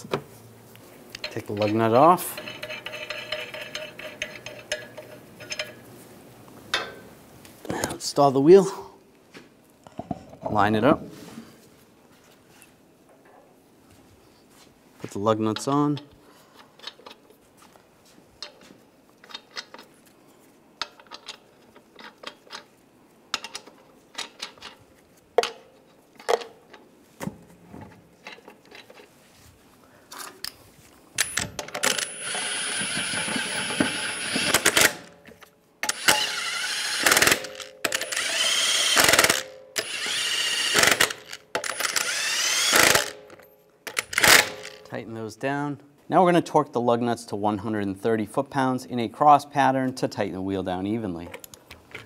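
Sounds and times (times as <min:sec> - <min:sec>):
cordless impact wrench bursts: 0:31.2 - 0:35.1, 0:35.8 - 0:44.8.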